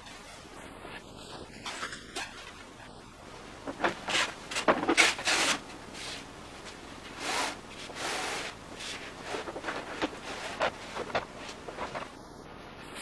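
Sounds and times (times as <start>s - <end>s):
rubbing and scraping strokes: 3.6s - 12.2s.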